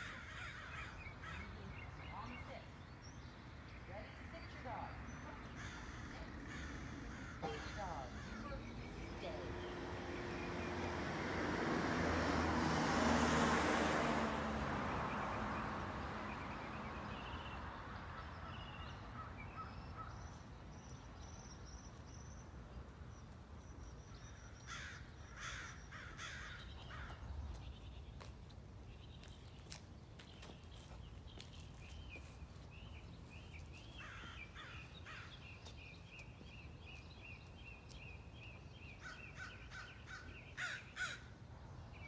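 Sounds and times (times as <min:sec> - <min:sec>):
car passing: 0:03.9 - 0:20.0.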